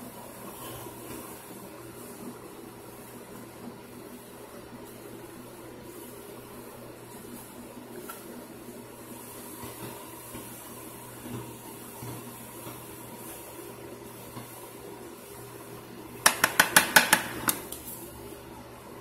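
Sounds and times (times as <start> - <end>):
sharp taps against a bowl: 16.2 - 17.6.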